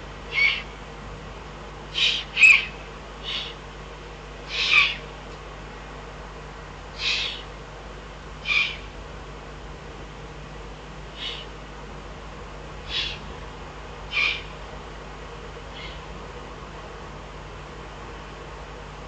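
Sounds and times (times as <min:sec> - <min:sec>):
owl hissing begging calls: 0:00.3 - 0:00.8, 0:01.9 - 0:03.6, 0:04.5 - 0:05.1, 0:07.0 - 0:07.5, 0:08.4 - 0:08.9, 0:11.1 - 0:11.5, 0:12.9 - 0:13.2, 0:14.1 - 0:14.6, 0:15.7 - 0:16.1.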